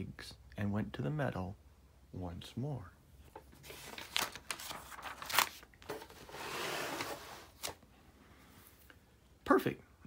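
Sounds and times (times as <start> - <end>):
book page turning: 3.3 - 7.8.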